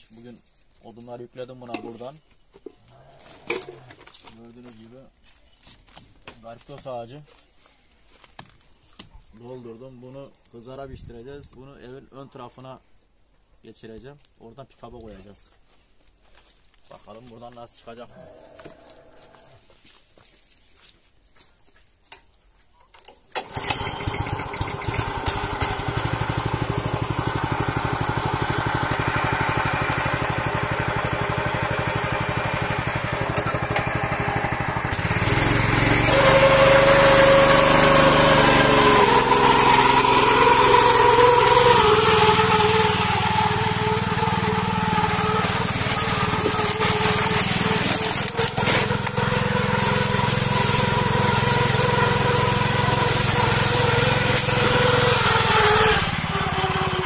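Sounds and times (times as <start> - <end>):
tiller engine running: 23.3 - 57.0.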